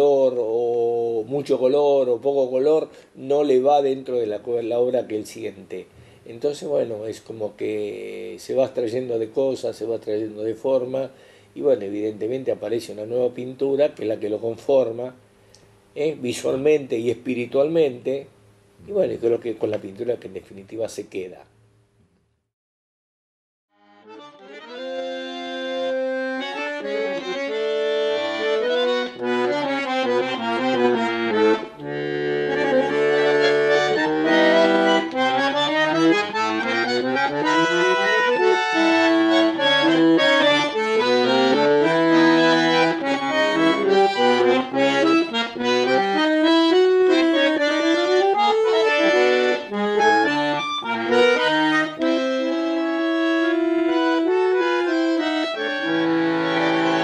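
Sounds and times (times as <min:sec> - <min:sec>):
bandoneon playing tango: 0:00.0 - 0:02.6, 0:23.8 - 0:57.0.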